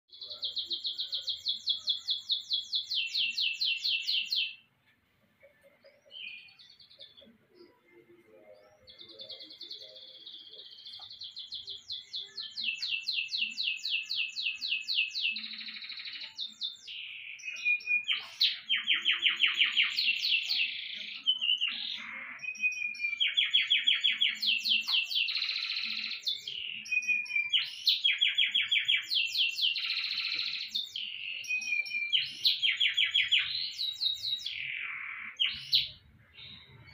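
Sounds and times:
canary singing high trills: 8.8 - 36.9.

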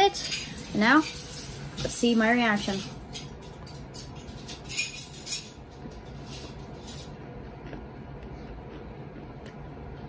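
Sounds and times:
chewing fried shrimp: 6.2 - 9.4.

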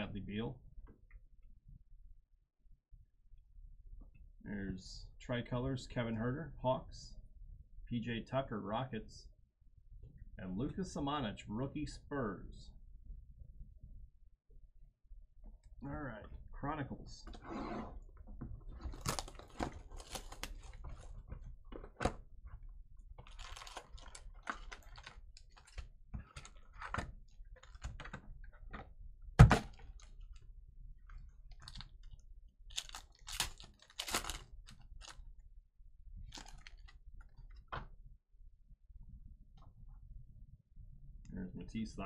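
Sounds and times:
foil wrappers crinkling: 18.8 - 21.2, 23.2 - 27.0, 31.5 - 35.2, 36.3 - 36.9.

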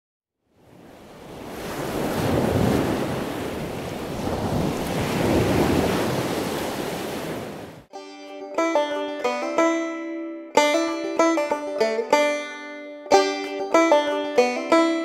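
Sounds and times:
plucked-string music: 7.9 - 15.0.

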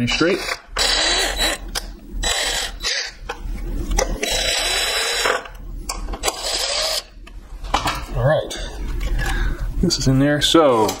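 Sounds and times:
cordless drill driving screws: 0.8 - 1.6.

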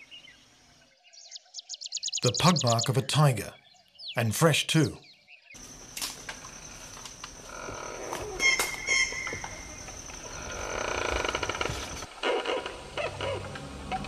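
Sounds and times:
high-pitched insect drone: 5.6 - 12.1.

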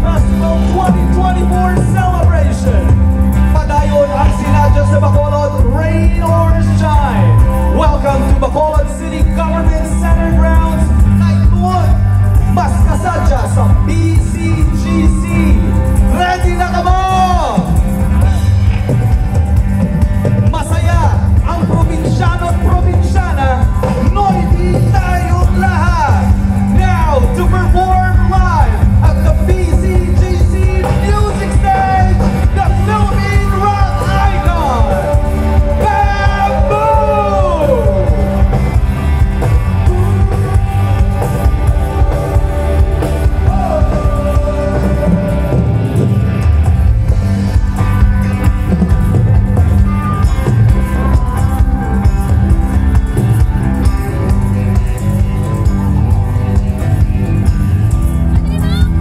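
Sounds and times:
drum kit: 0.0 - 59.0
electric guitar: 0.0 - 59.0
live rock band: 0.0 - 59.0
singer holding long notes: 22.6 - 46.9.

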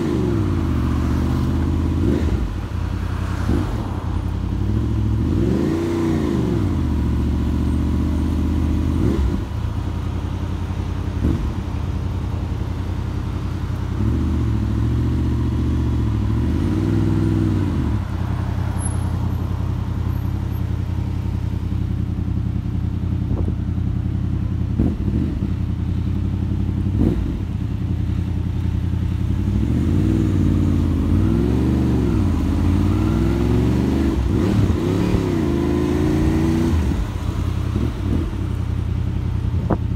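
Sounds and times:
motorcycle engine revving: 0.0 - 9.8, 20.1 - 39.9.

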